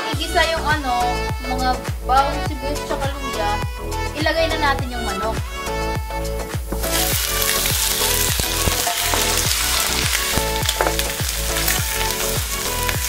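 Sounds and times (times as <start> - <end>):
background music with steady beat: 0.0 - 13.0
wooden spatula turning food: 6.2 - 13.0
chicken sizzling in oil: 6.3 - 13.0.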